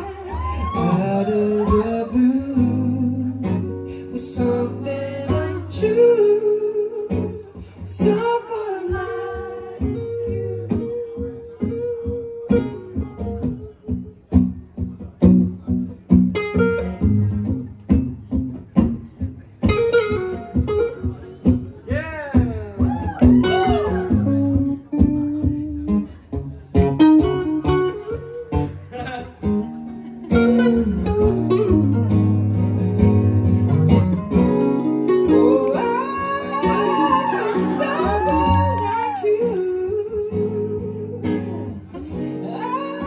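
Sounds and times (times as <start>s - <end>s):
man singing: 0.0s - 13.0s, 35.2s - 43.0s
acoustic guitar strumming: 0.8s - 43.0s.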